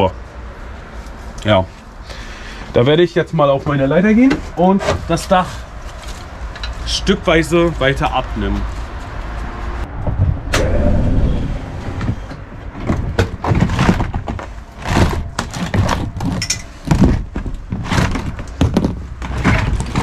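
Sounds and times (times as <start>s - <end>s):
steady low rumble: 5.6s - 17.8s
knocks and clatters of roof panels: 11.9s - 20.0s.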